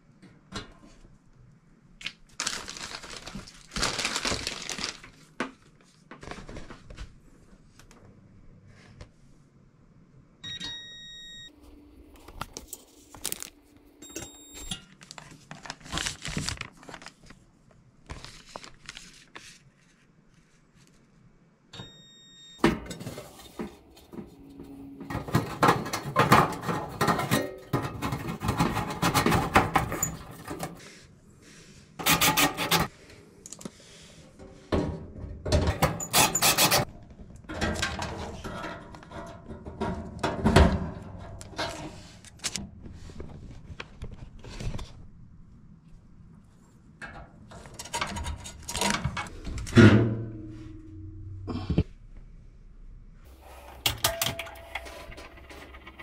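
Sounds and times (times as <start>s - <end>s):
sheet metal clattering and scraping: 22.7s - 30.8s, 37.5s - 42.1s, 47.1s - 51.2s.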